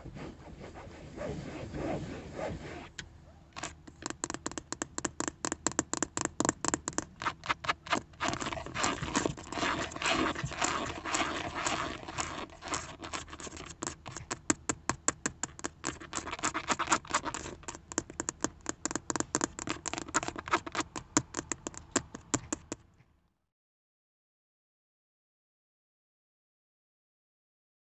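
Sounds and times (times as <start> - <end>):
fingernails scratching: 0.1 - 22.8
fingernails tapping: 3.6 - 8.4, 13.6 - 22.8.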